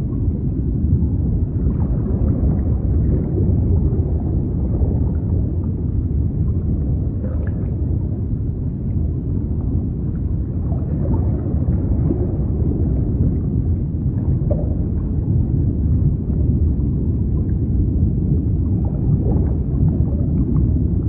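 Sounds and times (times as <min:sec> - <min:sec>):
underwater rumble of moving water: 0:00.0 - 0:21.0.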